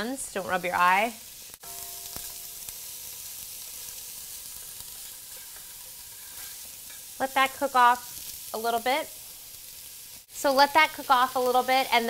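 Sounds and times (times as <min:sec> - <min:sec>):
food sizzling in a pan: 0:00.0 - 0:12.0
short ring: 0:01.6 - 0:03.9.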